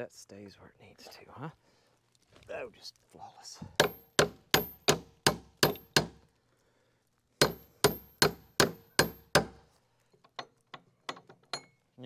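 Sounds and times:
hammer striking metal: 3.8s - 6.2s, 7.4s - 9.6s.

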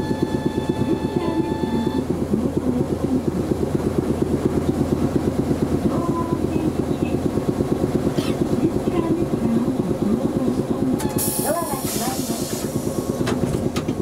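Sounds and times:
air compressor chugging: 0.0s - 14.0s.

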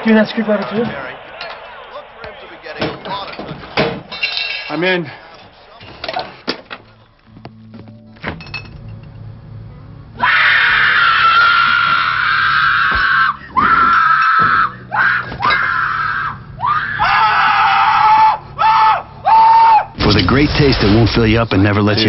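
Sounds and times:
low hum: 6.9s - 10.3s
shrill screaming: 10.2s - 20.0s.

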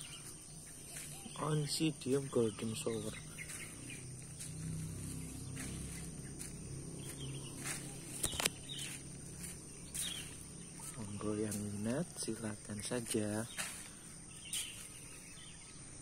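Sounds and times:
distant animal calls: 0.0s - 11.2s.

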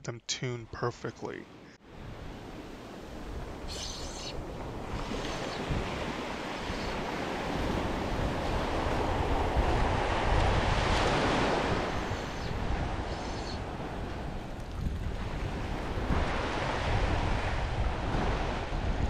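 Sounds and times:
ocean surf breaking: 1.3s - 19.0s
wind rumbling on microphone: 1.8s - 19.0s.

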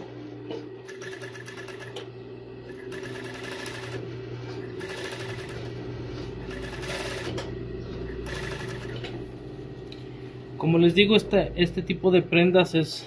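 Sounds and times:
motor hum: 0.0s - 13.0s
sewing machine stitching: 2.9s - 4.0s, 4.8s - 5.6s, 6.4s - 7.4s, 8.2s - 9.0s.

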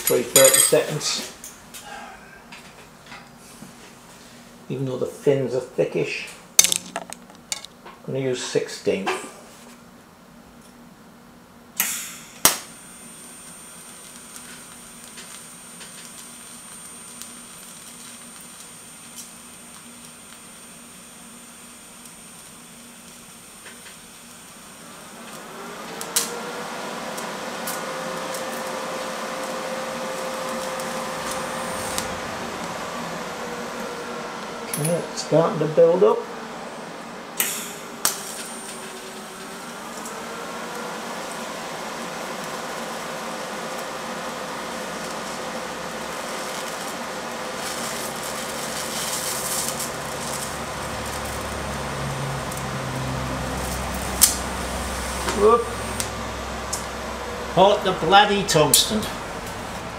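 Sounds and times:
welding arc buzzing: 0.0s - 10.8s, 11.6s - 59.9s
sharp crackles: 43.7s - 53.0s.

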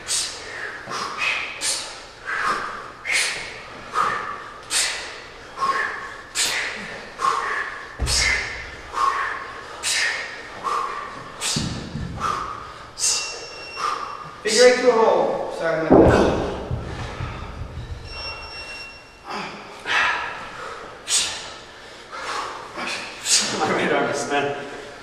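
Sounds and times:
people breathing sharply: 0.0s - 14.4s, 16.4s - 23.6s, 24.6s - 25.0s
dull thuds: 8.0s - 9.0s, 11.4s - 12.6s, 15.8s - 18.5s.

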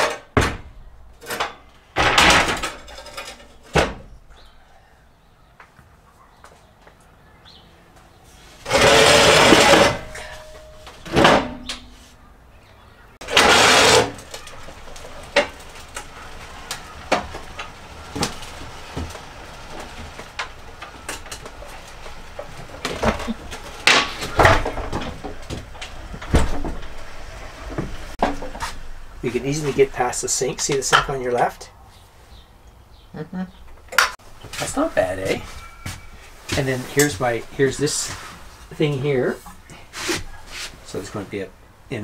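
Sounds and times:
ramps knocking and clunking: 0.0s - 4.2s, 13.2s - 28.9s
metal ramps clattering and scraping: 1.1s - 4.0s, 8.6s - 11.9s, 13.2s - 28.9s.

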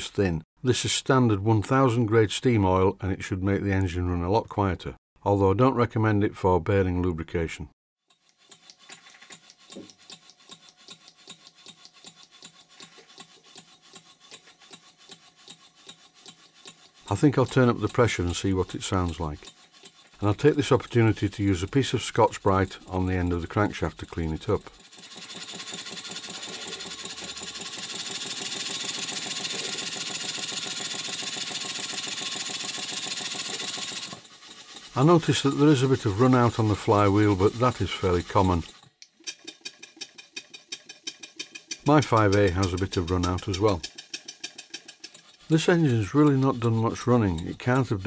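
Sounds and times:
model steam engine puffing: 24.7s - 48.0s.

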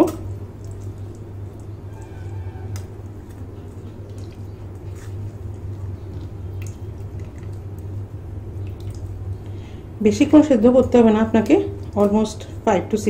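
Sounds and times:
spoon squishing food in strainer: 0.0s - 9.4s, 11.2s - 12.4s
low hum: 0.0s - 13.0s.

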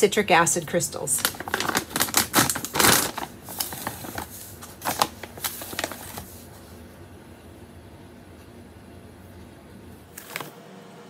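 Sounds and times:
plastic pouch crinkling: 1.2s - 6.4s.

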